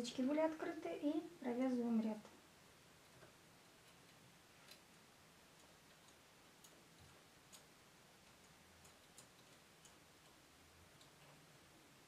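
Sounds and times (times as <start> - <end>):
knitting machine needles clicking: 3.1 - 11.6.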